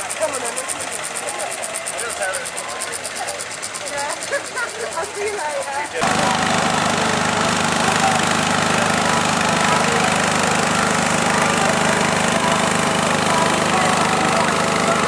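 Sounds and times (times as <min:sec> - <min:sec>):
small engine running steadily: 0:00.0 - 0:15.0.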